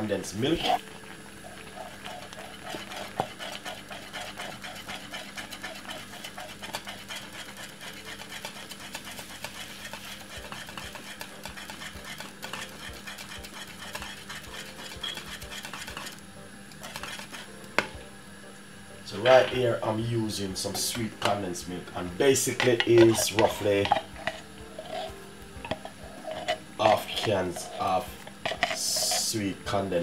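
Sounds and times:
whisk stirring thick porridge: 1.4s - 17.6s, 20.4s - 30.0s.

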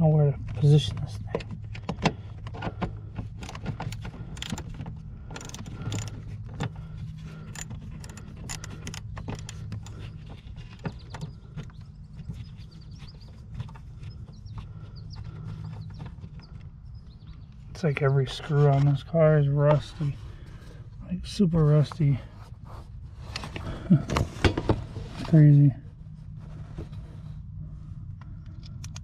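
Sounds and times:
steady low hum: 0.0s - 29.0s
hand ratchet clicking: 3.4s - 4.7s, 5.4s - 6.2s, 7.4s - 10.0s.

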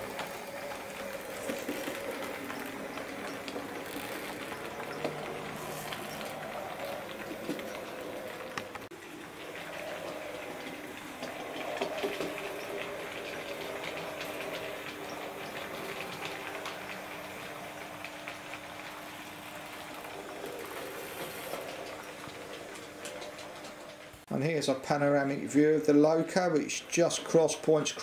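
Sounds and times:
model train motor hum: 0.0s - 24.3s
wheels clicking over rail joints: 0.0s - 28.0s.

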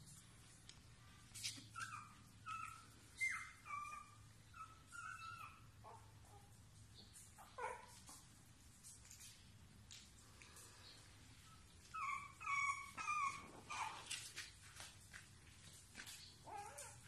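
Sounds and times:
puppies whimpering: 1.5s - 6.0s, 11.5s - 14.2s, 16.4s - 17.0s.

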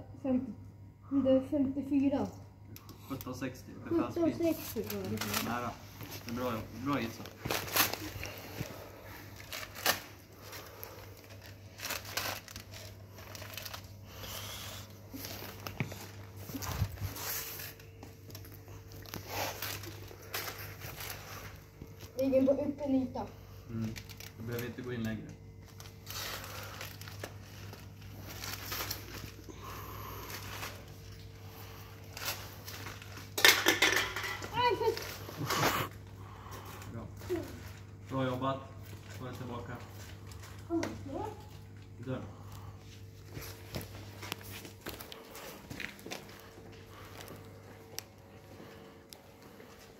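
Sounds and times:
steady low hum: 0.0s - 49.9s
crawling on concrete floor: 4.2s - 22.6s, 42.6s - 49.9s
person crawling on concrete: 42.8s - 49.9s.

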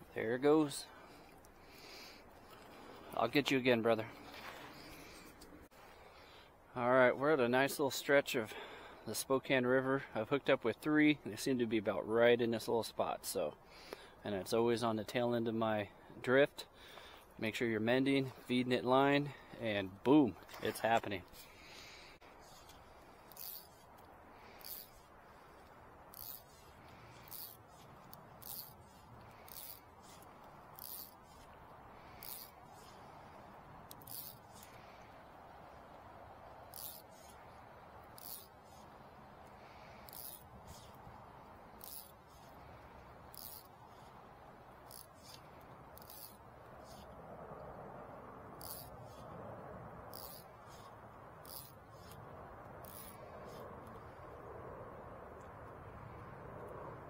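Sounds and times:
short hissing swishes: 21.4s - 33.3s, 50.1s - 52.2s.

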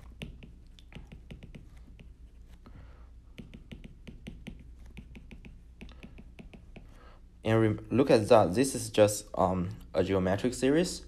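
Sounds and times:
stylus tapping on a tablet screen: 0.0s - 2.6s, 3.3s - 7.0s.

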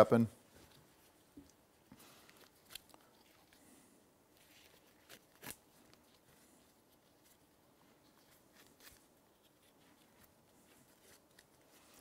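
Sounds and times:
webbing rustling: 0.4s - 12.0s.

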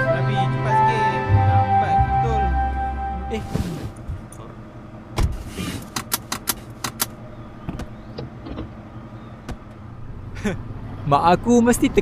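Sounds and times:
low engine hum: 0.0s - 12.0s
car door thumping shut: 5.2s - 6.1s
seat belt buckle clicks: 5.8s - 7.1s.

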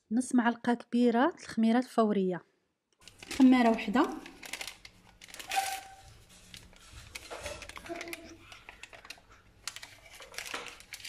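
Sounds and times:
plastic sachet crinkling: 3.0s - 11.0s.

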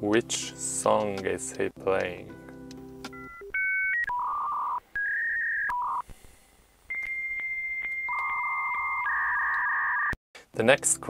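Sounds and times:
electronic dialing beeps: 3.1s - 6.0s, 6.9s - 10.2s
long steady high beep: 6.9s - 10.1s.

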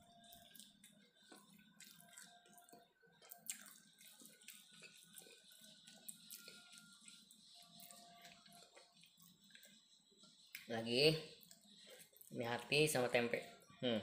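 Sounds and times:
fingers mixing food on a plate: 0.0s - 13.8s.

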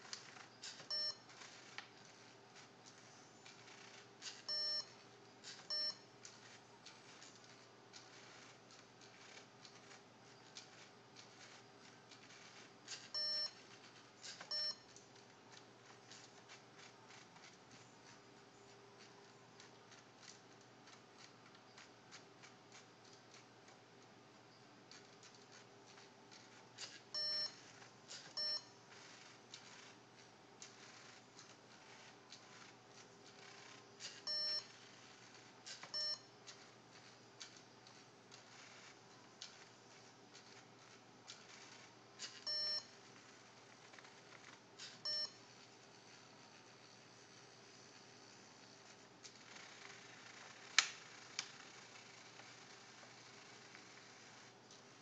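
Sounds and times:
motors ticking and whirring: 0.0s - 55.0s
short electronic beeps: 0.9s - 1.2s, 4.5s - 5.0s, 5.7s - 6.1s, 13.1s - 13.6s, 14.5s - 14.9s, 27.1s - 27.6s, 28.4s - 28.7s, 34.2s - 34.7s, 35.9s - 36.3s, 42.4s - 42.9s, 45.0s - 45.4s.

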